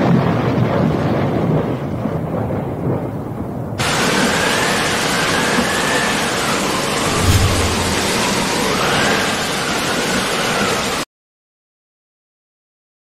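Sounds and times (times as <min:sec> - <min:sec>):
loud hiss with whistle: 0:03.8 - 0:07.0
deep rumbling noise: 0:06.9 - 0:08.6.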